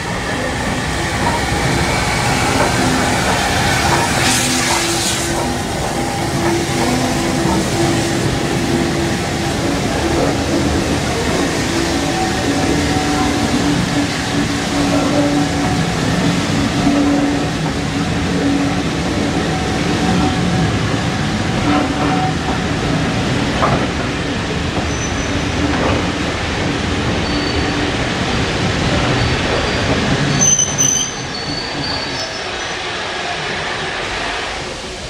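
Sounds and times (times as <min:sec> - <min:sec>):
train wheels rumbling on rails: 0:00.0 - 0:35.0
high wheel squeal: 0:27.2 - 0:27.9, 0:29.1 - 0:32.8.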